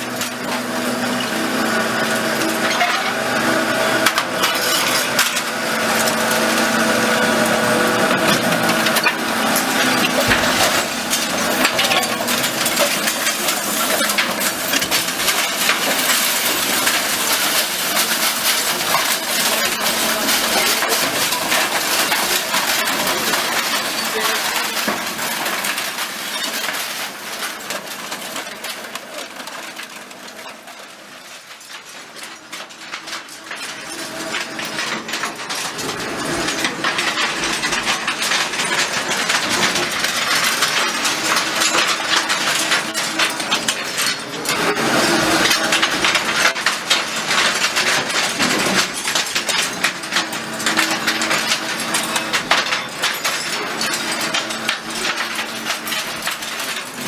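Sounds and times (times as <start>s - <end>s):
machine hum: 0.0s - 28.1s
metal pieces clattering: 0.0s - 57.0s.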